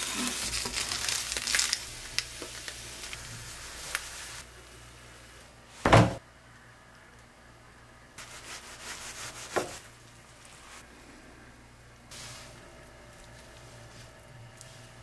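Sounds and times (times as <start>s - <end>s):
heavy thump: 5.8s - 6.2s.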